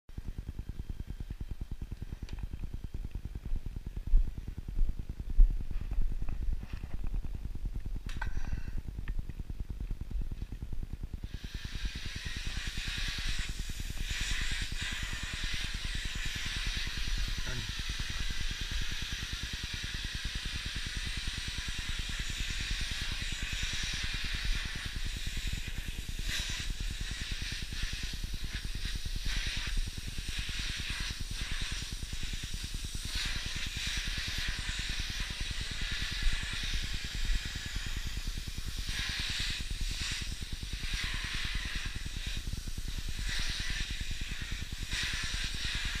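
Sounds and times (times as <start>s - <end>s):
vacuum cleaner suction: 11.2s - 46.0s.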